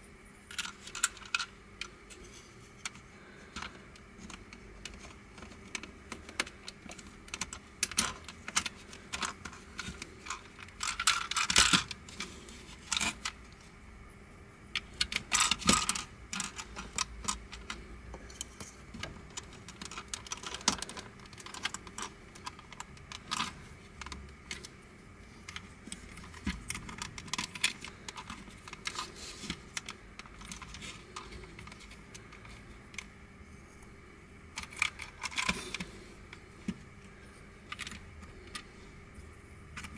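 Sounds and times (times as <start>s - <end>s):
plastic puzzle pieces clicking: 2.8s - 12.2s, 19.0s - 24.7s, 34.6s - 35.9s.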